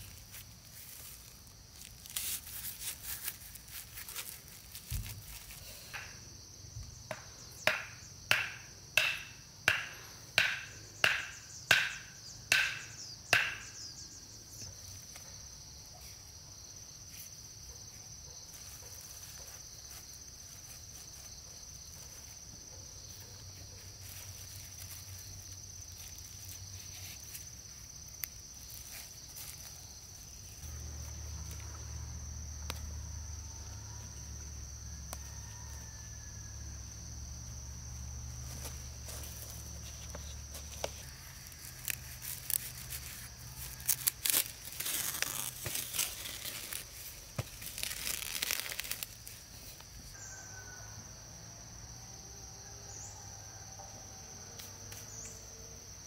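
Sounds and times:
plastic film rustling: 0.0 - 5.8, 40.6 - 49.4.

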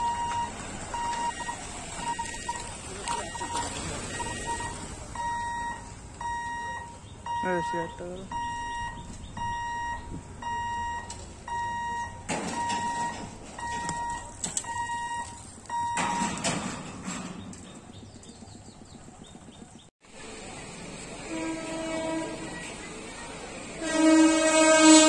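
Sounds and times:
level crossing warning beeps: 0.0 - 16.4
traffic noise: 0.0 - 25.0.

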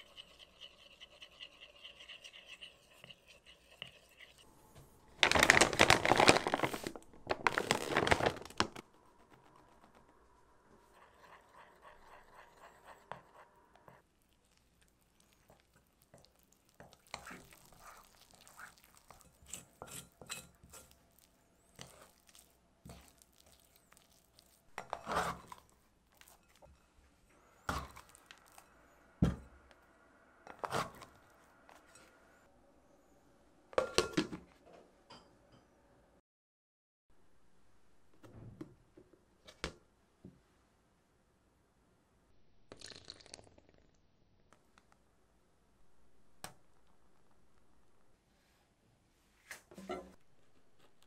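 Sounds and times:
crinkling: 5.0 - 10.1.

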